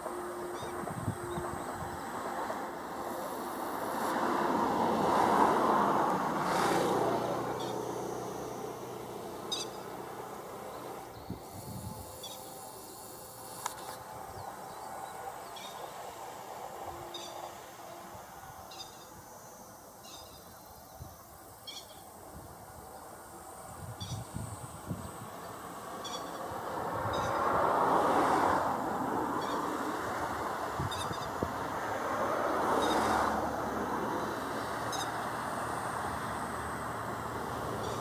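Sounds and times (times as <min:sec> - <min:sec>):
vehicle passing: 0:00.0 - 0:11.2, 0:25.2 - 0:38.0.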